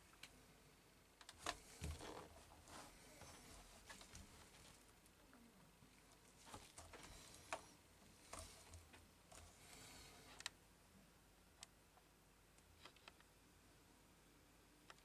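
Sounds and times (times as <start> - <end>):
gloved hands rustling: 1.4 - 5.0.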